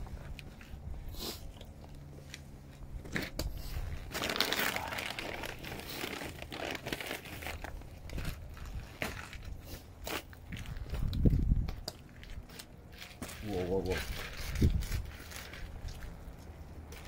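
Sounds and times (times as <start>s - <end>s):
plastic bag rustling: 3.7s - 11.3s, 12.1s - 17.0s.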